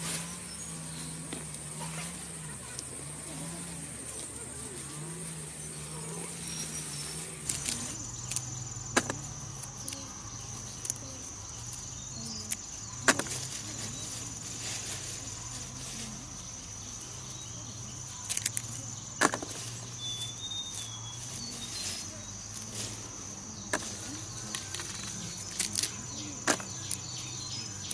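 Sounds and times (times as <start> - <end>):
insects chirring: 0.0 - 27.9
pods snapping: 7.4 - 10.0, 18.3 - 19.4.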